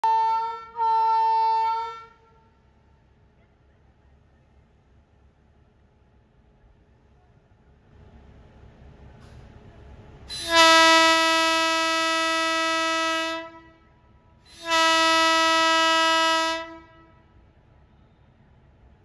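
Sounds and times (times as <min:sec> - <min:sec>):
electric locomotive horn blasts: 0:00.0 - 0:02.5, 0:10.3 - 0:17.3.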